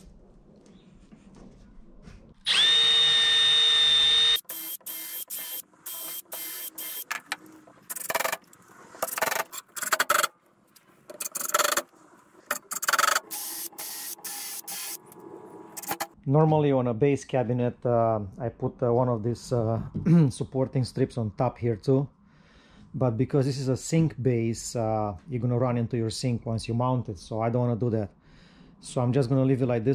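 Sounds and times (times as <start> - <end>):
cordless drill whining: 2.4 - 7.1
drill motor short bursts: 2.5 - 7.1, 12.6 - 15.0.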